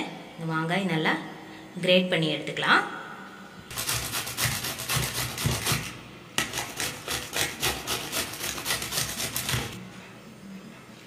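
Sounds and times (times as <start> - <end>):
mango rasping on a grater: 3.7 - 9.8.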